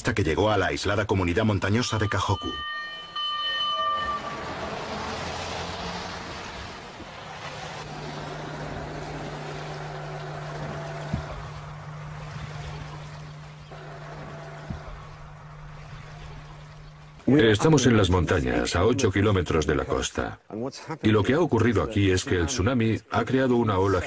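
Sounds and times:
fire engine driving past: 0:03.2 - 0:12.6
low hum: 0:07.8 - 0:18.4.

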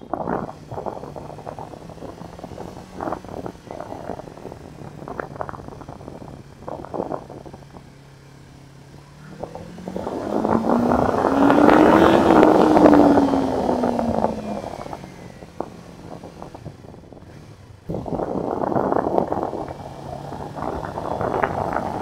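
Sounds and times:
motorcycle engine accelerating: 0:00.0 - 0:22.0
wind rushing over microphone: 0:00.0 - 0:22.0.

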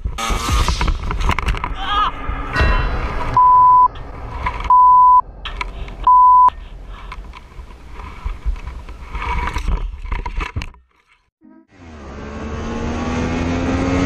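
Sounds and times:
censor bleeps: 0:03.4 - 0:03.9, 0:04.7 - 0:05.2, 0:06.1 - 0:06.5.

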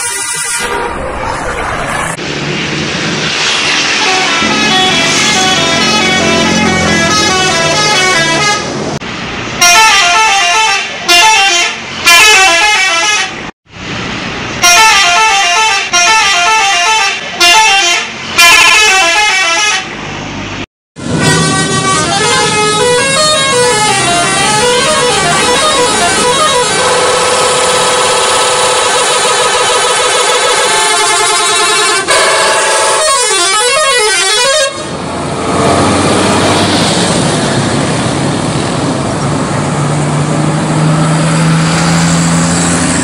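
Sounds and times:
musical bus horns: 0:00.0 - 0:01.0, 0:03.8 - 0:09.0, 0:09.6 - 0:13.5, 0:14.6 - 0:20.2, 0:21.0 - 0:37.4.

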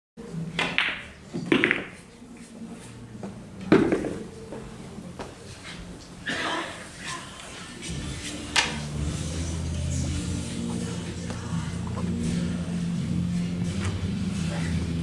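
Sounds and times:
pool balls clacking: 0:00.5 - 0:02.1, 0:03.2 - 0:05.4
murmur of voices: 0:02.0 - 0:15.0.

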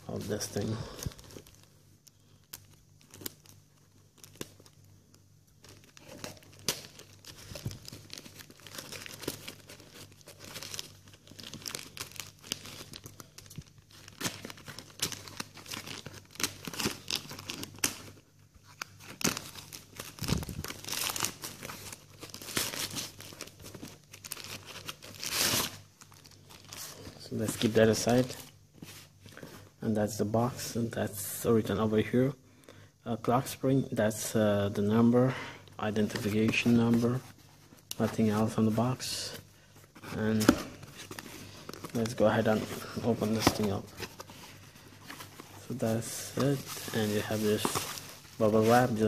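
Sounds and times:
plastic bag crinkling and tearing: 0:05.6 - 0:28.4, 0:40.2 - 0:49.0.

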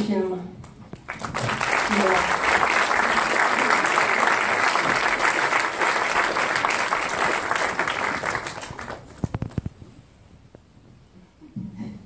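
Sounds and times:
audience applauding: 0:00.9 - 0:09.6.

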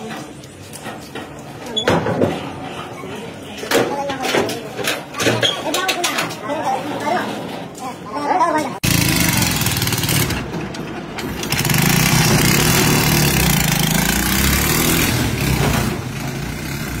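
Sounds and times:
motorcycle engine pulling away: 0:08.8 - 0:10.6, 0:11.2 - 0:17.0.

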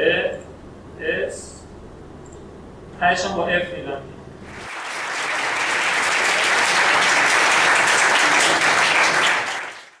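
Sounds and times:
audience applauding: 0:04.5 - 0:10.0.

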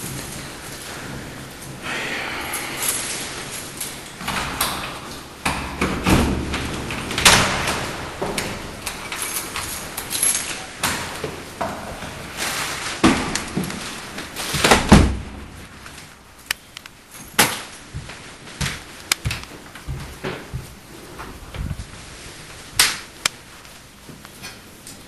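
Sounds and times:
heavy door thump: 0:14.6 - 0:15.6.

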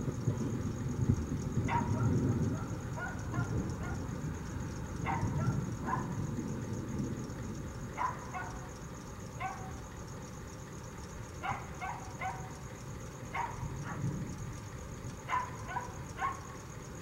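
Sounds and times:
dog barking: 0:01.7 - 0:04.1, 0:05.0 - 0:06.2, 0:08.0 - 0:08.8, 0:09.4 - 0:09.8, 0:11.4 - 0:12.6, 0:13.3 - 0:14.1, 0:15.3 - 0:16.6.

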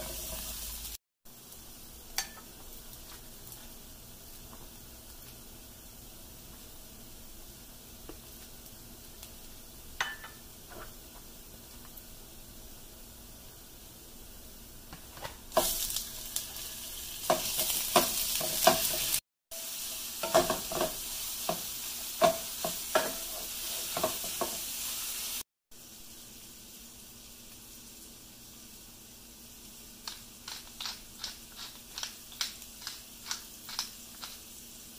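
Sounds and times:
meat sizzling in a frying pan: 0:00.0 - 0:14.6, 0:15.4 - 0:34.9
spatula tapping and scraping pan: 0:02.2 - 0:03.2, 0:17.2 - 0:19.2, 0:20.2 - 0:24.7.

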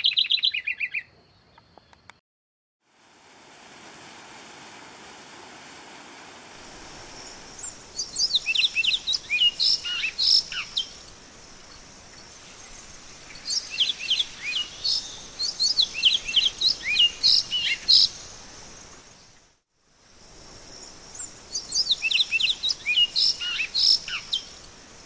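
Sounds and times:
bird singing whistled notes: 0:00.0 - 0:02.0, 0:06.9 - 0:11.0, 0:12.2 - 0:18.3, 0:21.2 - 0:24.5
steady high hiss: 0:02.9 - 0:25.0.

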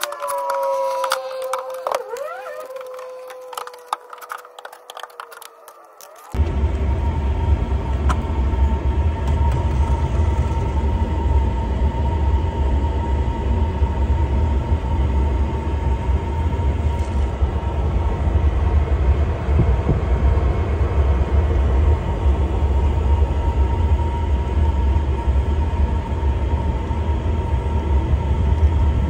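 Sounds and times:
thin steady whine: 0:00.0 - 0:29.0
pool heater burner rumble: 0:06.4 - 0:29.0.

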